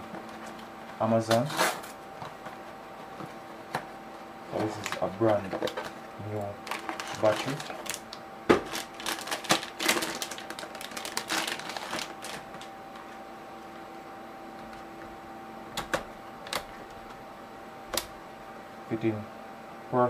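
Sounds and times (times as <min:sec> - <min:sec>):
faint steady hum: 0:00.0 - 0:20.0
plastic wrapping crinkling: 0:06.6 - 0:12.7.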